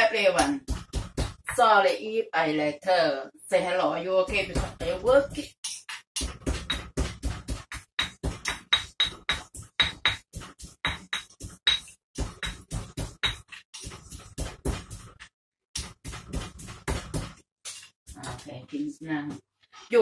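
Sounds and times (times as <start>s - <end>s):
pestle pounding in stone mortar: 0.4s - 1.7s, 4.3s - 18.2s.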